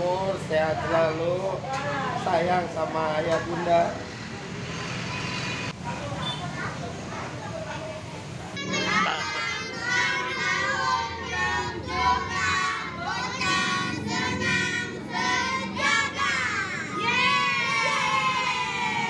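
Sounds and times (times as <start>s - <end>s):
children singing and shouting: 8.6s - 19.0s
children cheering: 17.0s - 19.0s.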